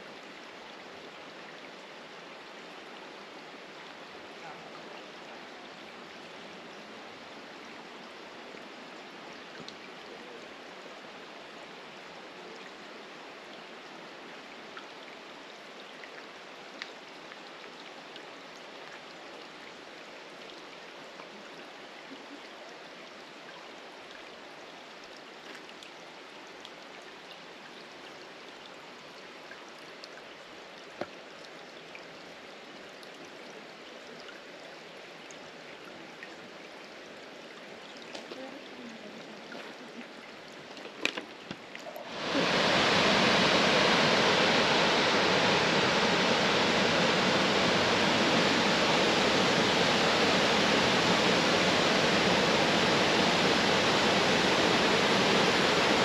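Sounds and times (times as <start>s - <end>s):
brook trickling over stones: 0.0s - 42.7s
small water drips: 9.3s - 10.2s, 13.5s - 42.2s.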